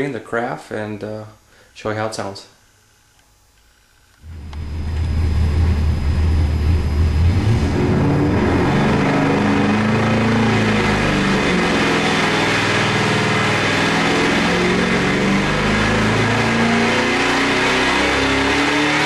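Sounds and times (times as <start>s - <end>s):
engine running on dyno: 4.2s - 19.0s.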